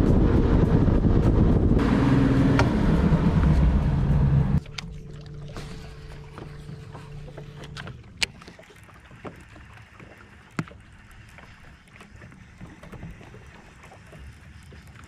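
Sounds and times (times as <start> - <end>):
low steady hum: 0.0 - 8.5
water lapping: 1.7 - 15.0.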